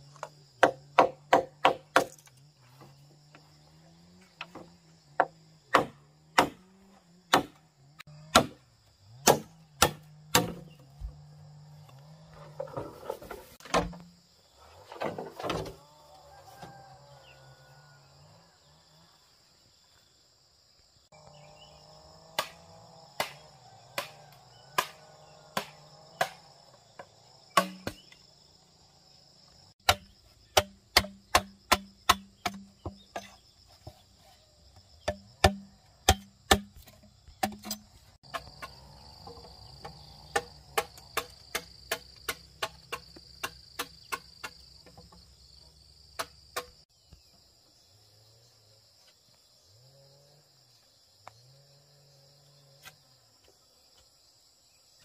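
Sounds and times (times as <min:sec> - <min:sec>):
high drone of insects: 0:00.0 - 0:55.0
machete striking bamboo: 0:00.2 - 0:02.4, 0:04.4 - 0:07.6, 0:08.2 - 0:08.6, 0:09.2 - 0:10.8, 0:22.4 - 0:26.5, 0:27.6 - 0:28.2, 0:29.8 - 0:33.4, 0:35.0 - 0:45.1, 0:46.2 - 0:46.8.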